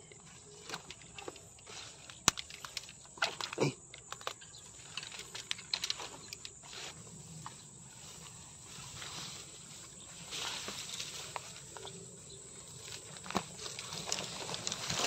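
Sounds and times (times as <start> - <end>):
leaves and stalks rustling: 0.0 - 15.0
footsteps through dense weeds: 0.2 - 3.4, 4.6 - 15.0
small snaps and crackles: 0.6 - 6.6.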